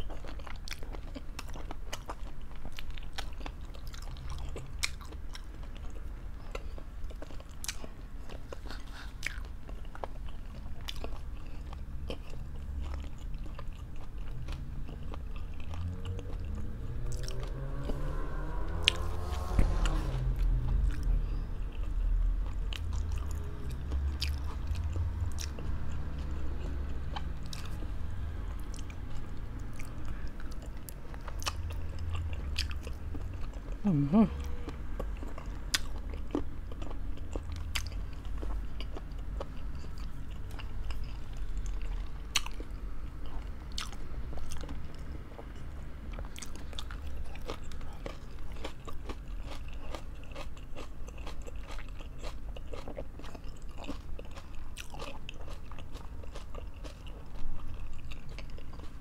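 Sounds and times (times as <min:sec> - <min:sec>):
person chewing food: 0:00.0 - 0:59.0
short rising pitch sound: 0:16.7 - 0:20.9.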